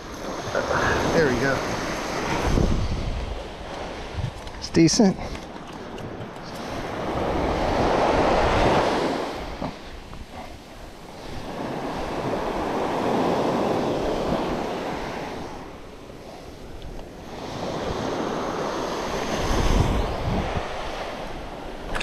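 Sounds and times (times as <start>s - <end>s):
waves washing up sand: 0.0s - 5.2s, 5.8s - 22.0s
wind rumble on microphone: 0.0s - 22.0s.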